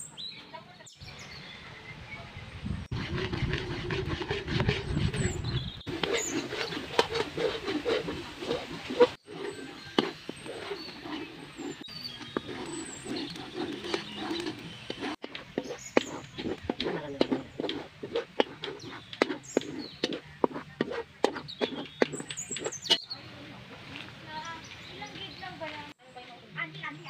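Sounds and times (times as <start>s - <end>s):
metal spatula scraping wok: 2.9s - 23.0s.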